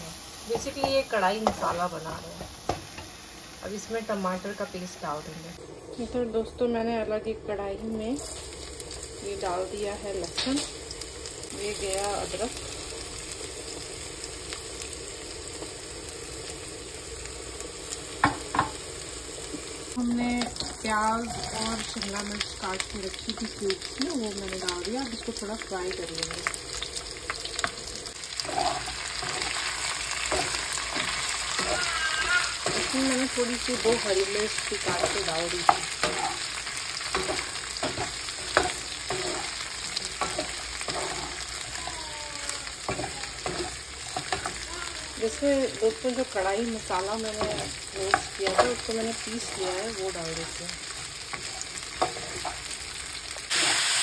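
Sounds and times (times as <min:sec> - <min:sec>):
garlic sizzling in hot oil: 0:00.0 - 0:54.0
spatula scraping a pan: 0:28.4 - 0:34.2, 0:34.8 - 0:41.6, 0:42.8 - 0:44.6, 0:51.3 - 0:52.7.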